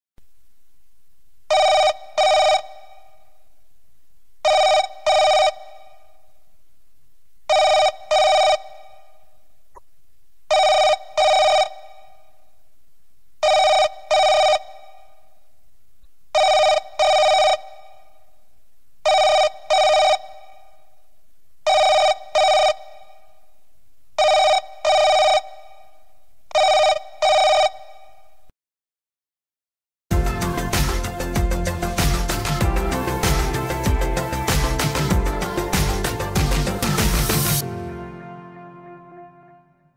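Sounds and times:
telephone bell ringtone: 1.5s - 3.1s, 4.5s - 6.1s, 7.5s - 9.1s, 10.5s - 12.2s, 13.4s - 15.0s, 16.4s - 18.0s, 19.1s - 20.6s, 21.7s - 23.2s, 24.2s - 25.8s, 26.6s - 28.2s.

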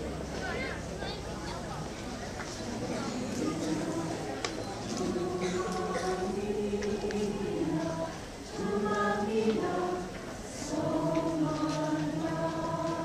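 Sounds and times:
choir singing in harmony: 2.9s - 13.0s.

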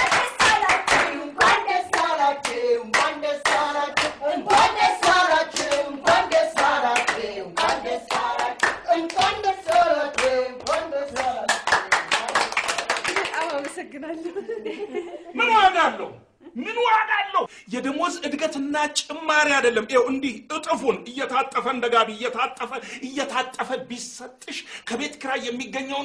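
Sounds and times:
voices singing: 0.0s - 12.0s
people clapping in rhythm: 0.0s - 13.8s.

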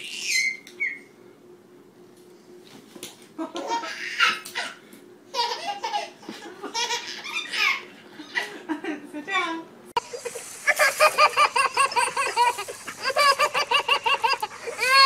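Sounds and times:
baby laughing: 3.4s - 8.7s, 10.1s - 15.0s.

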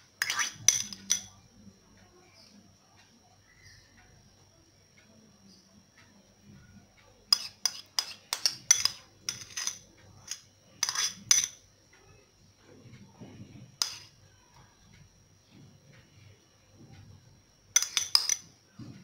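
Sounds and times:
metal spoon clinking against bowl: 0.2s - 1.4s, 7.3s - 11.6s, 13.8s - 14.1s, 17.7s - 18.5s.

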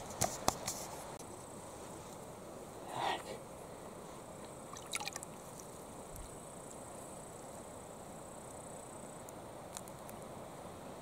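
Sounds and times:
insect chirring: 4.4s - 10.2s.

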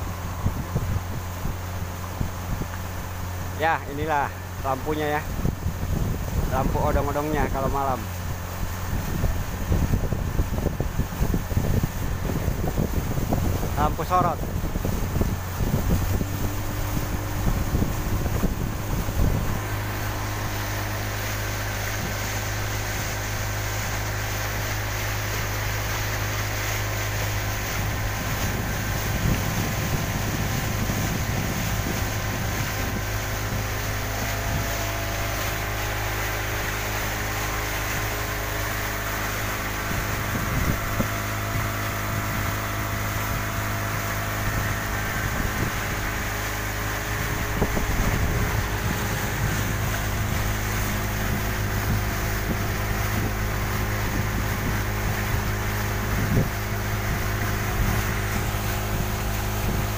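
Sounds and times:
outboard motor running: 0.0s - 59.9s
wind and water rushing: 0.0s - 59.9s.

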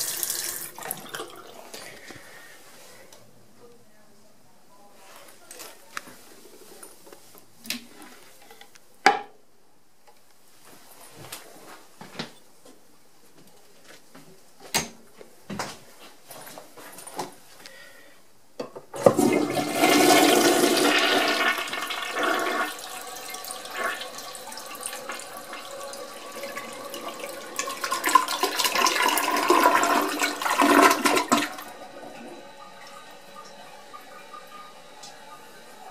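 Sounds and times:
toilet water rushing: 0.0s - 1.9s, 19.0s - 35.9s
toilet flush click: 19.0s - 35.9s.

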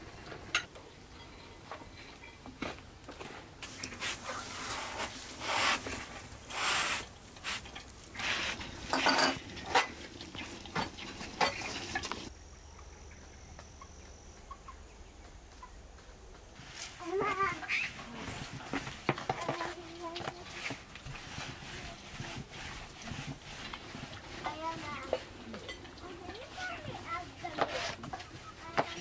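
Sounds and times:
cloth wiping metal stove: 3.2s - 12.3s, 16.6s - 29.0s.

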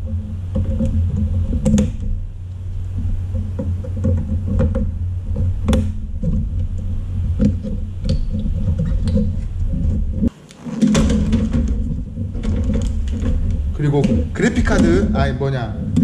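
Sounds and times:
computer parts clicking and knocking: 0.0s - 2.2s, 10.8s - 16.0s.

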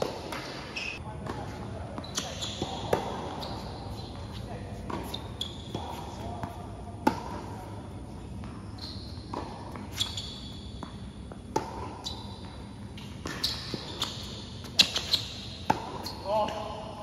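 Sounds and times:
tennis ball bouncing: 0.0s - 16.6s
rackets striking tennis ball: 0.0s - 16.8s
shoes squeaking on court: 0.0s - 16.8s.

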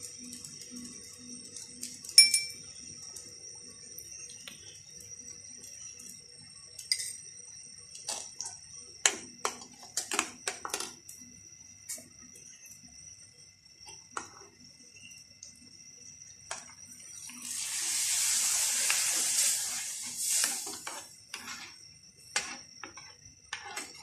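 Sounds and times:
faint high-pitched whine: 0.0s - 24.0s
metal spoon clinking on bowl: 2.2s - 2.6s.

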